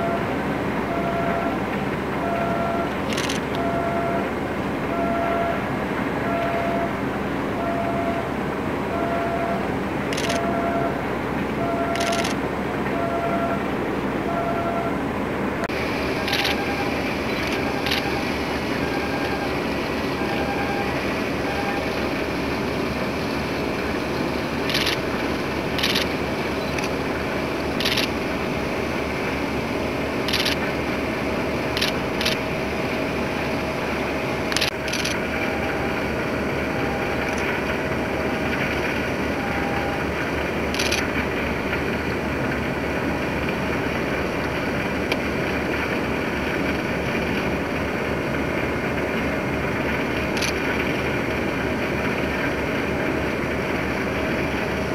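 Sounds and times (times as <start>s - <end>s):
constant rush of noise: 0.0s - 54.9s
steady mechanical hum: 0.0s - 54.9s.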